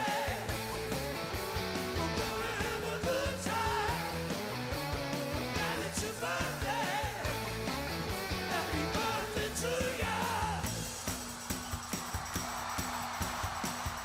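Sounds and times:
backing band playing: 0:00.0 - 0:14.0
person singing: 0:01.9 - 0:04.2, 0:05.4 - 0:07.6, 0:08.3 - 0:10.9.

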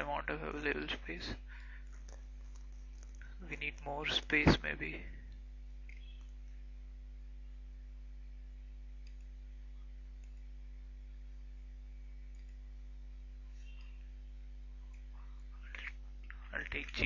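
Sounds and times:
steady low hum: 0:00.0 - 0:17.0
computer mouse clicks: 0:09.0 - 0:09.3, 0:12.3 - 0:12.6.

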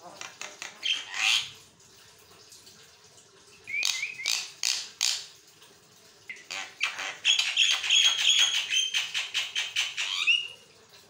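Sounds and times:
bird chirping: 0:03.7 - 0:04.5
harsh scratchy bird calls: 0:06.4 - 0:10.5.

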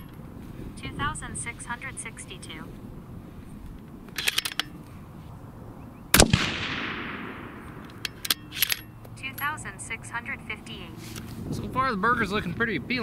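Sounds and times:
sharp clicks: 0:03.7 - 0:04.9, 0:06.2 - 0:09.5
rifle shot echoing: 0:06.1 - 0:08.6.

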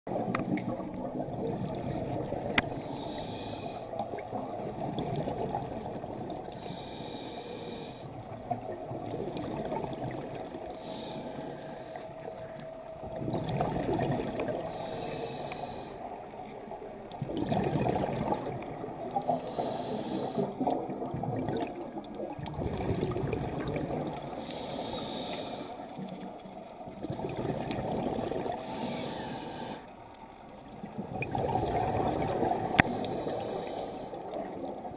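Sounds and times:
gurgling exhaled bubbles: 0:00.1 - 0:02.8, 0:04.0 - 0:06.5, 0:08.2 - 0:10.7, 0:13.1 - 0:14.8, 0:17.2 - 0:19.4, 0:20.4 - 0:24.5, 0:26.9 - 0:28.8, 0:30.8 - 0:33.7
scuba regulator hissing inhale: 0:02.7 - 0:04.0, 0:06.5 - 0:08.2, 0:10.8 - 0:12.1, 0:14.6 - 0:16.1, 0:19.4 - 0:20.6, 0:24.4 - 0:25.9, 0:28.6 - 0:30.0, 0:32.8 - 0:34.3.

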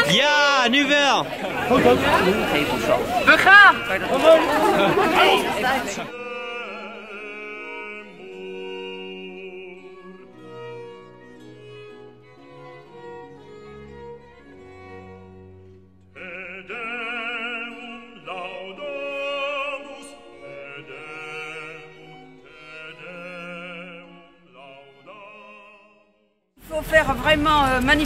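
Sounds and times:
orchestral strings: 0:00.0 - 0:28.0
operatic singer with vibrato: 0:01.9 - 0:10.3, 0:16.2 - 0:26.0.

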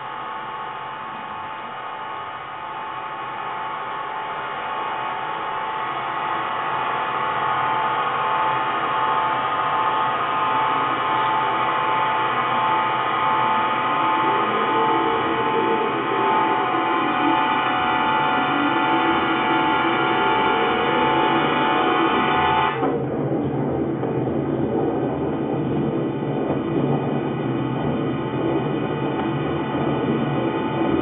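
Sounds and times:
sustained drone of held tones: 0:00.0 - 0:22.9.

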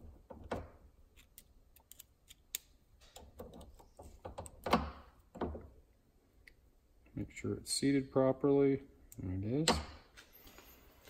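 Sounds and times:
small metallic clicks of pliers: 0:01.2 - 0:03.2.

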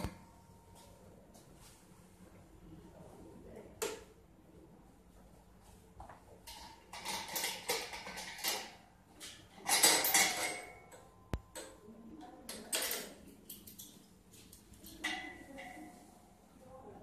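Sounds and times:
metal parts clanking and scraping: 0:06.5 - 0:10.9.

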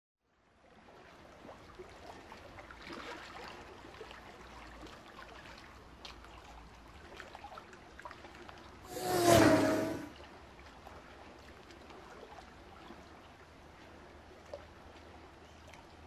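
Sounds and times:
water trickling and splashing: 0:00.4 - 0:08.9, 0:10.1 - 0:16.0
low hum: 0:08.9 - 0:10.1.

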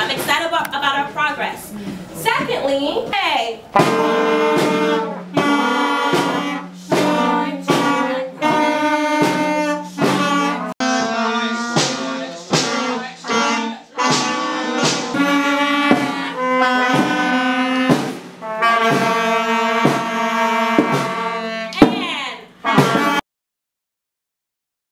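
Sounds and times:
wind band playing chords: 0:03.6 - 0:21.8, 0:22.5 - 0:23.2.

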